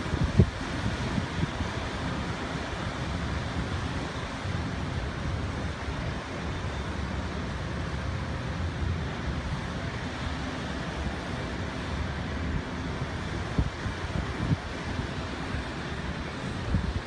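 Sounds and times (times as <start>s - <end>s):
boat engines rumbling: 0.0s - 17.0s
boat wake on water: 0.0s - 17.0s
wind buffeting microphone: 0.0s - 17.0s.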